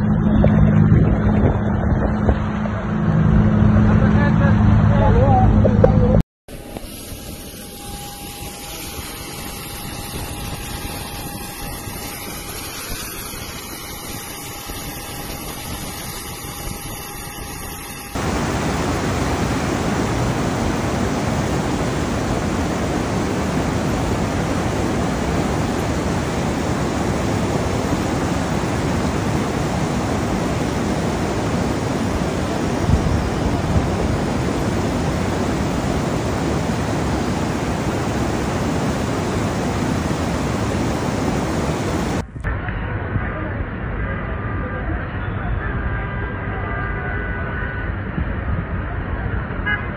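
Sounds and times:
steady hiss: 0:06.5 - 0:42.2
faint held tone: 0:06.6 - 0:32.9
fast-flowing floodwater rushing: 0:18.2 - 0:42.2.

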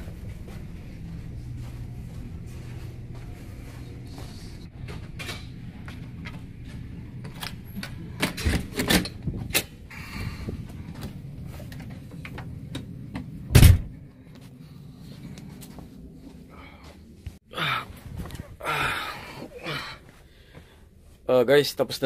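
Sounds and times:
ship's low hum: 0:00.0 - 0:17.4.

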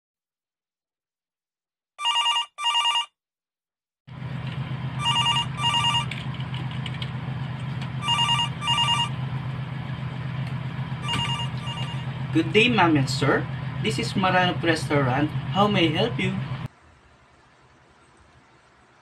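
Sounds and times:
telephone ringing: 0:02.0 - 0:03.2, 0:05.0 - 0:06.2, 0:08.0 - 0:09.2, 0:11.0 - 0:12.2
steady low hum: 0:04.2 - 0:19.0.

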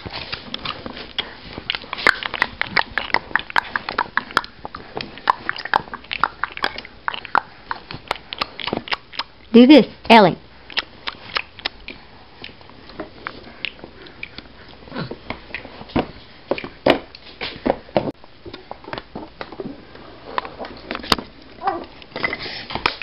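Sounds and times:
dogs eating: 0:00.0 - 0:09.5.

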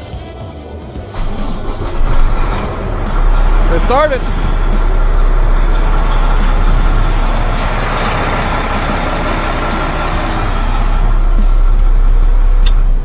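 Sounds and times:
diesel truck engine idling: 0:01.0 - 0:13.0.

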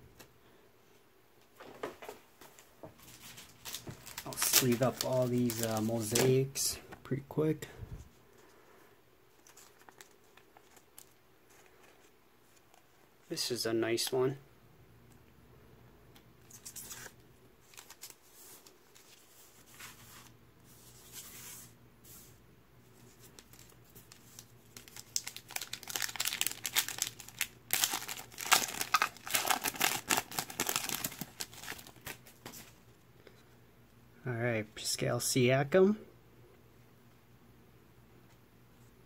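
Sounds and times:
cards rustling into plastic sleeves: 0:03.0 - 0:07.2, 0:09.3 - 0:13.0, 0:16.4 - 0:32.8
foil wrapper tearing: 0:03.5 - 0:06.4, 0:23.4 - 0:32.3.

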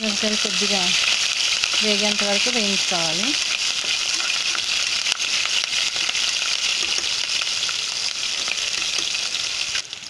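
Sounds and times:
seeds sizzling in hot oil: 0:00.0 - 0:10.0
steel spoon stirring: 0:03.4 - 0:07.2.

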